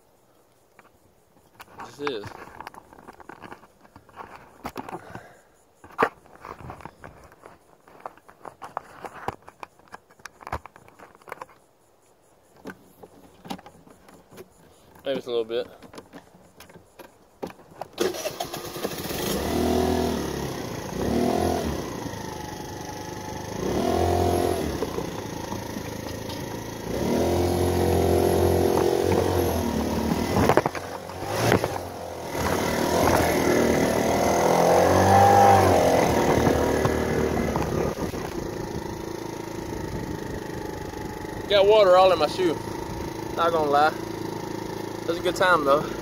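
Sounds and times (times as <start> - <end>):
scooter engine revving: 18.0 - 46.0
engine sharp pops: 28.6 - 34.2, 34.8 - 46.0.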